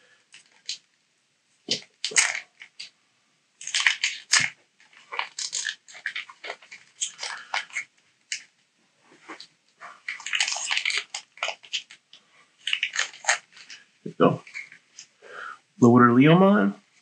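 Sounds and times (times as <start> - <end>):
foil wrapper crinkling and tearing: 0.3 - 0.9, 1.7 - 2.9, 3.6 - 8.6, 9.4 - 15.2.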